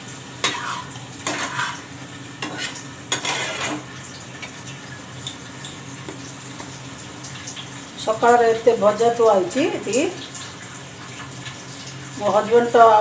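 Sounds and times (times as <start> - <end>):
spatula scraping frying pan: 0.3 - 4.6.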